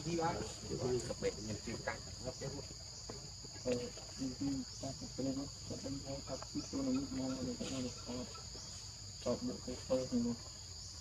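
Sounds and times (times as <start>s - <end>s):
indistinct voices chattering: 0.0s - 8.6s
insect chorus drone: 0.0s - 11.0s.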